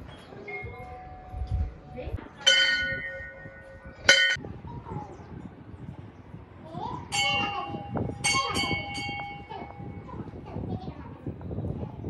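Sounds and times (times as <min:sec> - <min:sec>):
temple bell ringing: 0:00.5 - 0:04.4, 0:07.1 - 0:10.2.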